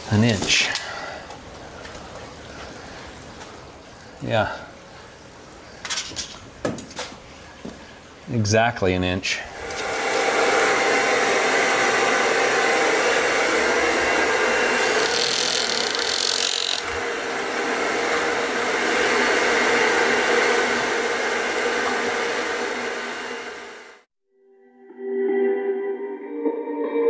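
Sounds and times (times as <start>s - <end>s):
whooshing machine noise: 9.5s - 24.1s.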